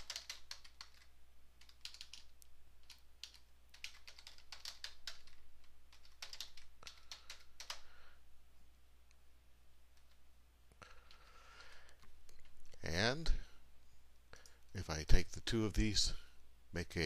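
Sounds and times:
computer keyboard typing: 0.0 - 7.9.

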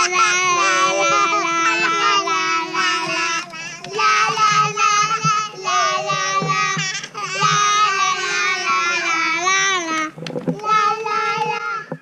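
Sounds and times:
high singing voice: 0.0 - 12.0.

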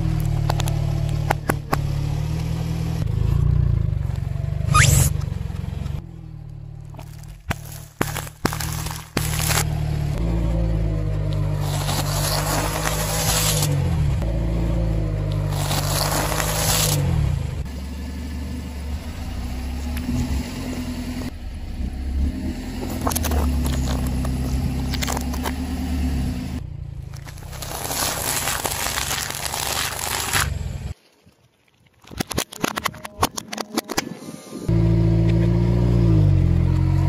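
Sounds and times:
car engine humming: 0.0 - 31.0
tyre crushing food and plastic: 6.8 - 9.8, 11.5 - 13.8, 15.3 - 17.1, 22.8 - 25.6, 27.1 - 30.7.

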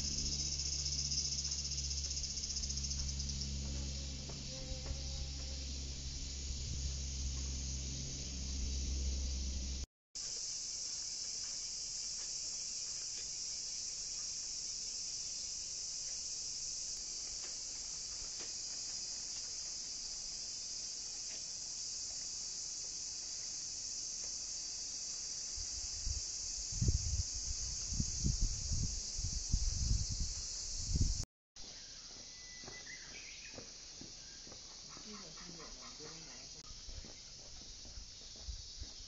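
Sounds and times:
low rumbling: 0.0 - 9.9
cicadas droning: 0.0 - 39.0.

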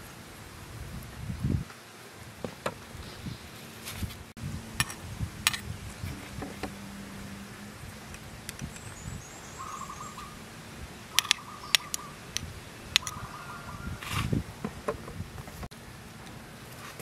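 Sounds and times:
high bird twittering: 5.9 - 10.5, 11.1 - 14.1
bird trilled call: 8.2 - 10.5, 11.1 - 14.0.

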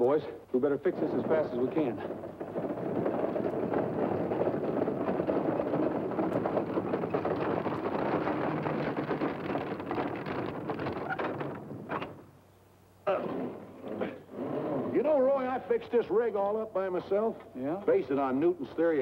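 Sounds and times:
wagon wheels rattling: 0.0 - 12.3
horses galloping: 0.0 - 12.4.

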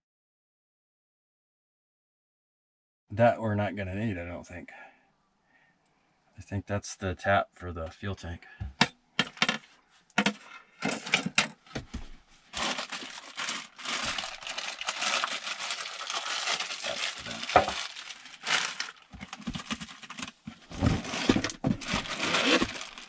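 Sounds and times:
plastic packaging crinkling: 12.5 - 23.0.

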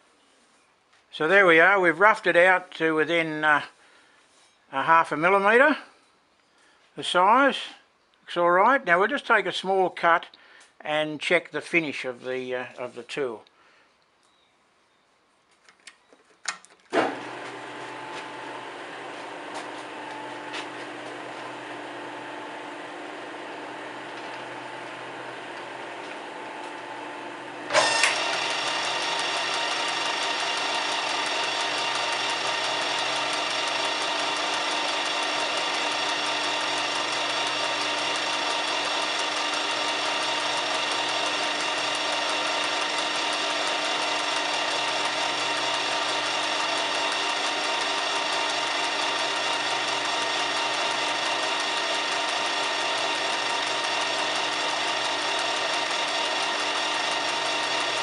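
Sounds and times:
lathe motor starting: 17.0 - 58.0
lathe drive whine: 17.1 - 58.0
boring bar cutting metal: 19.8 - 27.0, 27.7 - 58.0.

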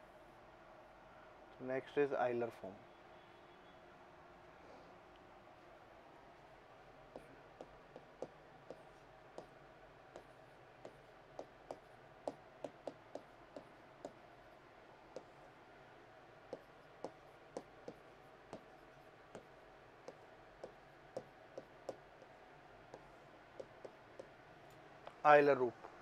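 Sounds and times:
chalk tapping on chalkboard: 7.1 - 14.2, 15.1 - 15.5, 16.5 - 24.4.

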